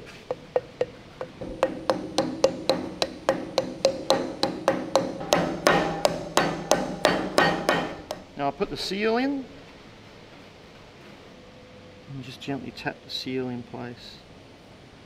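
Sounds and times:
mallet tapping metal with ring: 0.3s - 8.3s.

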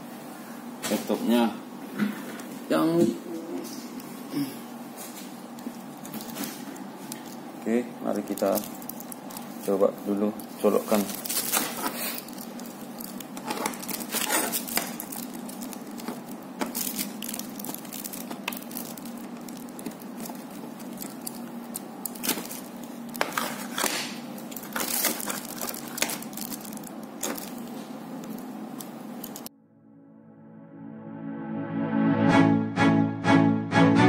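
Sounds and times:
steady low hum: 0.0s - 31.6s
plastic packaging crinkling: 5.2s - 29.5s.

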